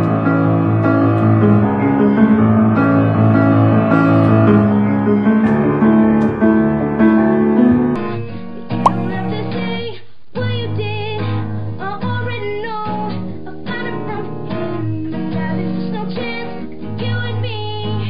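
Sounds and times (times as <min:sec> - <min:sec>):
piano chords: 0:00.0 - 0:08.0.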